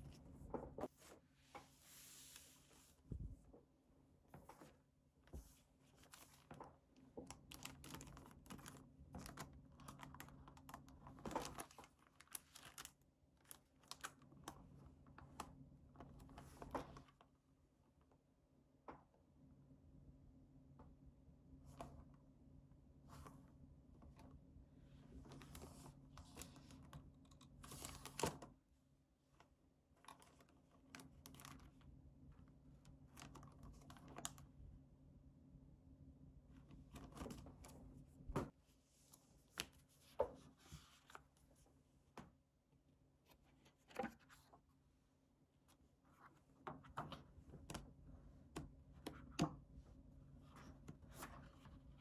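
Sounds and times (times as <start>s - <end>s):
cards and plastic packaging handled: 4.5s - 17.2s, 25.2s - 28.5s, 30.0s - 31.9s, 32.9s - 34.6s.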